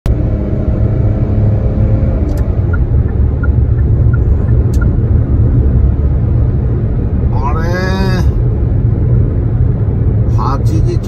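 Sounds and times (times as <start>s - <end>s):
road and engine rumble: 0.0s - 11.0s
click: 2.3s - 2.5s
light regular ticking: 2.3s - 5.0s.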